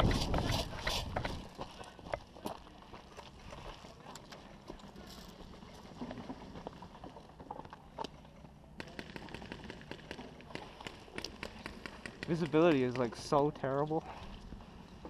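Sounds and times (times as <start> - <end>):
footsteps on dirt and gravel: 0.0 - 8.0.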